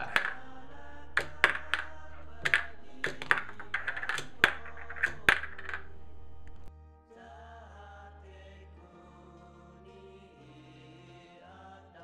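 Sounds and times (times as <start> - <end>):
background music: 0.0 - 12.0
metal ashtray clinking and rattling: 1.2 - 6.0.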